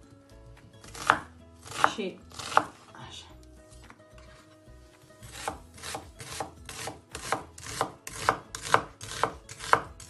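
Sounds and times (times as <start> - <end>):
knife chopping on wooden board: 0.8 - 2.8, 5.2 - 10.0.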